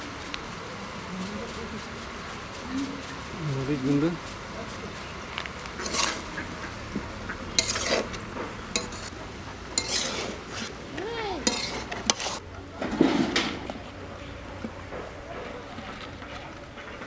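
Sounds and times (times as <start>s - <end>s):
metal spatula scraping metal pan: 5.8s - 6.4s, 7.5s - 9.1s, 9.8s - 10.8s, 11.4s - 12.4s.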